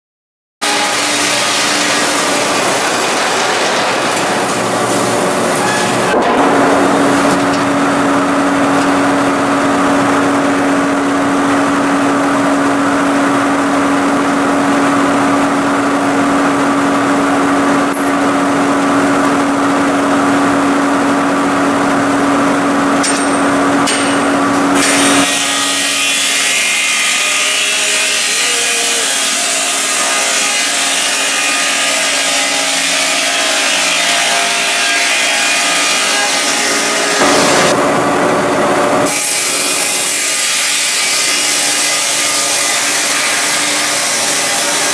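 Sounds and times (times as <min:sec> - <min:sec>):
circular saw cutting logs: 0:00.6 - 0:19.2, 0:23.1 - 0:37.8, 0:39.0 - 0:44.9
steady hum: 0:00.6 - 0:25.3, 0:36.6 - 0:40.3.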